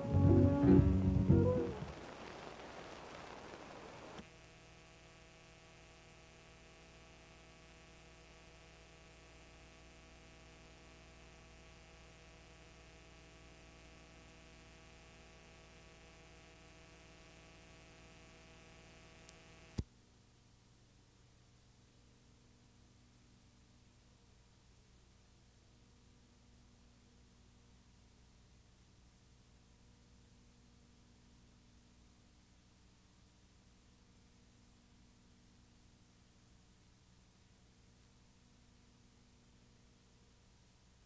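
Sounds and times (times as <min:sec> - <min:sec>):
faint electrical mains hum: 0:00.0 - 0:41.0
hiss: 0:01.8 - 0:04.2.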